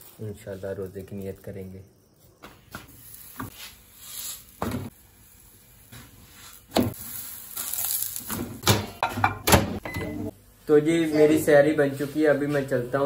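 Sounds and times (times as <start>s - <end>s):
flatbread sizzling in a pan: 2.6s - 8.7s.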